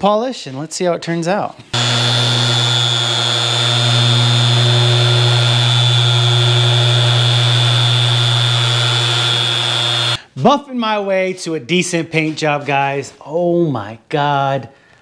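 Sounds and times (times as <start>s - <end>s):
electric polisher humming and whining: 1.7s - 10.2s.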